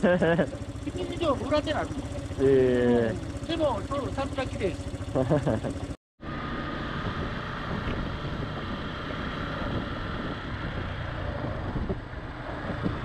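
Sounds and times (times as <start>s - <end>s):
motorcycle engine drone: 0.0s - 13.0s
wind rushing on microphone: 6.3s - 13.0s.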